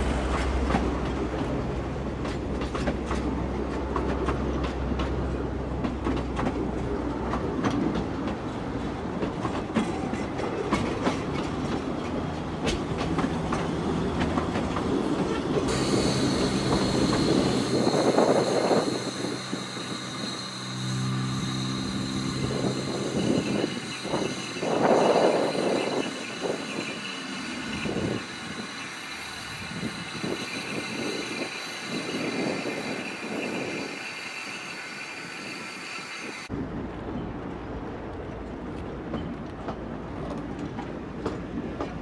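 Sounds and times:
train coaches rumbling past: 0:00.0 - 0:42.0
wheels clicking over rail joints: 0:00.2 - 0:19.7, 0:37.1 - 0:42.0
steam locomotive hissing: 0:13.5 - 0:36.5.

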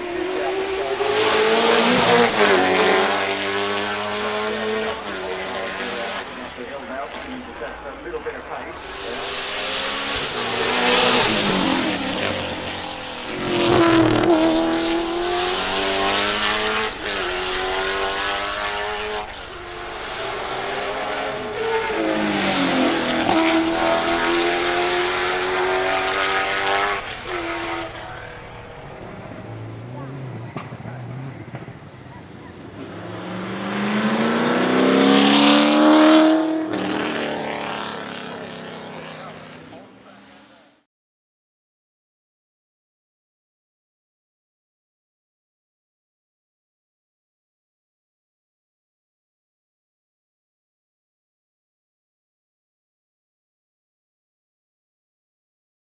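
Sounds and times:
race car accelerating through gears: 0:00.0 - 0:07.6, 0:08.8 - 0:40.8
race car engine passing: 0:00.0 - 0:40.8.

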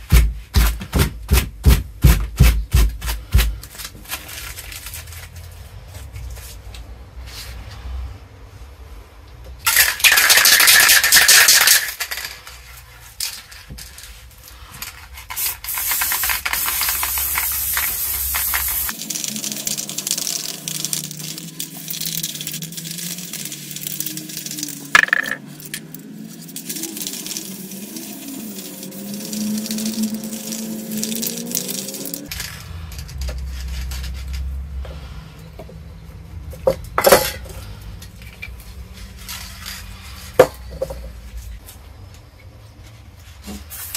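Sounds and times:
spray can mixing ball rattling: 0:09.6 - 0:34.6, 0:38.3 - 0:41.2, 0:43.5 - 0:43.9
spray paint hissing: 0:09.7 - 0:12.4, 0:14.6 - 0:32.3, 0:43.5 - 0:43.9.

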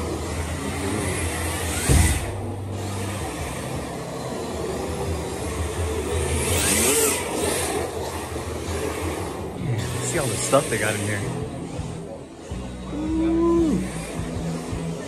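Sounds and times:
electric toy car motor whining: 0:00.0 - 0:15.0
sharp thump: 0:01.8 - 0:02.5.

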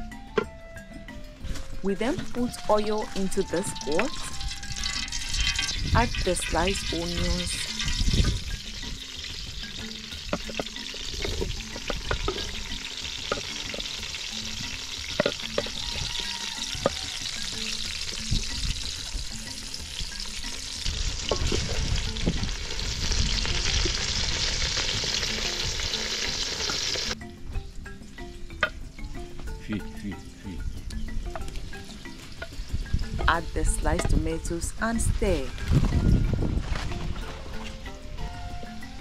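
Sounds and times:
onions sizzling in oil: 0:02.3 - 0:27.2.

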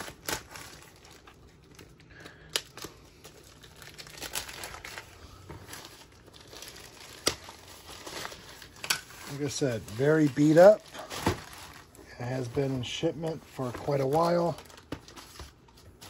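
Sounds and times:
packing tape peeling and tearing: 0:00.0 - 0:05.1, 0:05.8 - 0:11.9
crinkling: 0:00.0 - 0:16.0.

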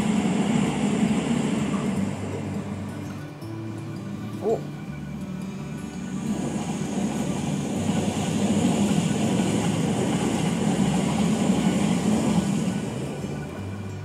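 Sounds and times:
electric train rumble and rail hiss: 0:00.0 - 0:14.0.

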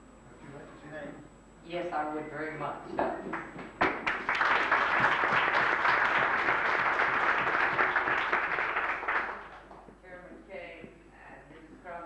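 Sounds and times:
audience applauding: 0:03.4 - 0:09.8.

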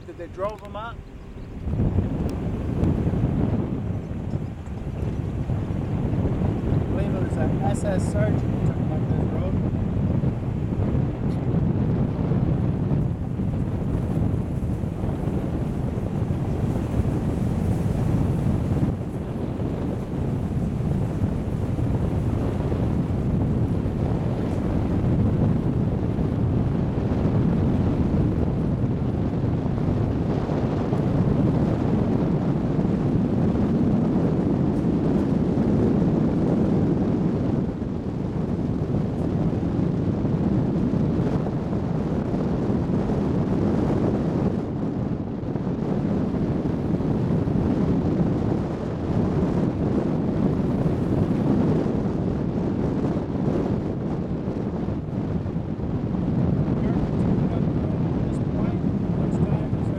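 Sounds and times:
tyres and engine rumbling: 0:00.0 - 0:11.5
wind buffeting microphone: 0:00.0 - 0:59.9.

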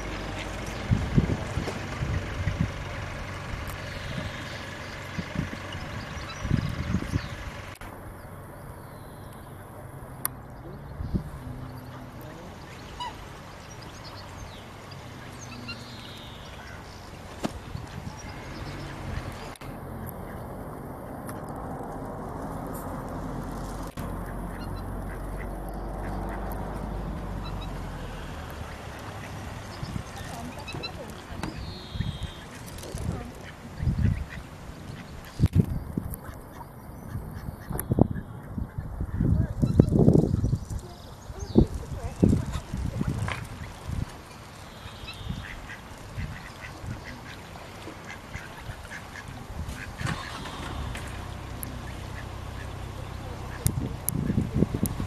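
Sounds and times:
low rumbling noise: 0:00.0 - 0:55.0
ducks quacking: 0:11.4 - 0:20.6, 0:23.9 - 0:35.5, 0:36.2 - 0:40.5, 0:44.6 - 0:54.8.

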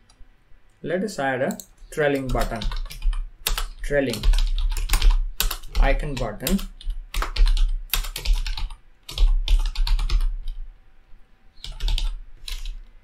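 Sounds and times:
typing on computer keyboard: 0:01.6 - 0:10.6, 0:11.6 - 0:12.8.

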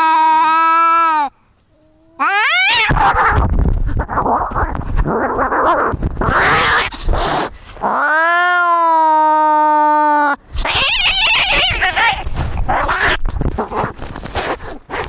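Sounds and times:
cat yowling: 0:02.2 - 0:13.2
cat caterwauling: 0:02.2 - 0:13.8
cats scuffling: 0:12.2 - 0:15.0.

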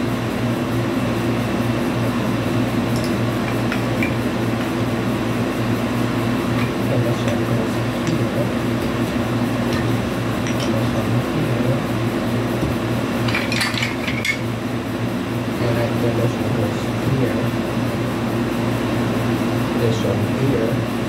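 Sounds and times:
air conditioner humming: 0:00.0 - 0:21.0.

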